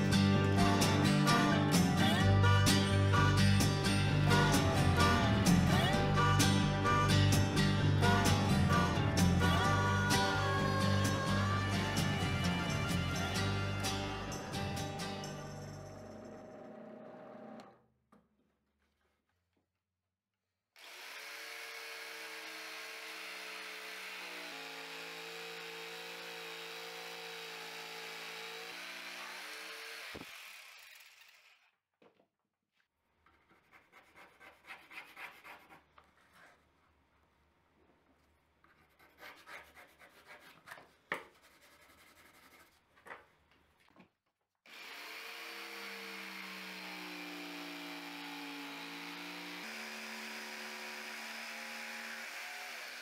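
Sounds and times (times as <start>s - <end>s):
power tool running on wood: 20.8s - 31.7s, 44.7s - 53.0s
hand rubbing and scraping on wood: 33.3s - 37.1s, 38.2s - 43.8s.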